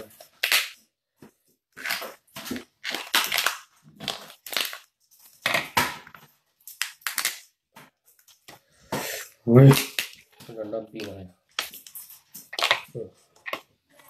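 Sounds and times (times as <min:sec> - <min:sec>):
lobster shell cracking: 0:01.8 - 0:05.9, 0:06.6 - 0:07.6, 0:09.7 - 0:10.3, 0:11.0 - 0:13.7.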